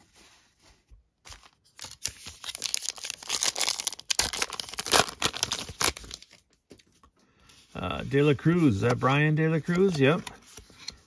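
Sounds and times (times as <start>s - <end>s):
wrapper tearing and crinkling: 1.4s - 6.4s.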